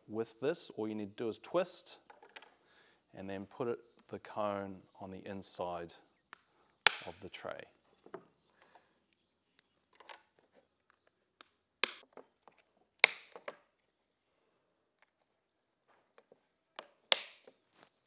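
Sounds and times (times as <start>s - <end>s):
plastic parts snapping into place: 6.3s - 7.2s, 13.0s - 13.6s, 16.8s - 17.6s.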